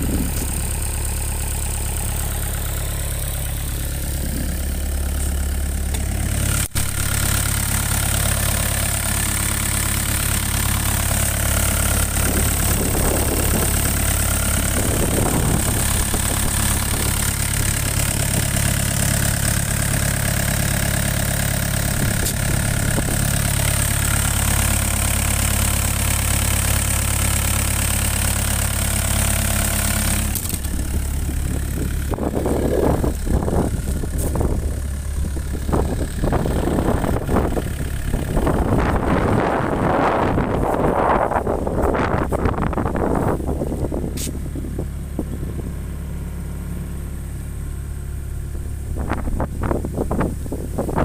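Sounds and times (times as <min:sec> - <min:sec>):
diesel engine idling: 0:00.0 - 0:51.0.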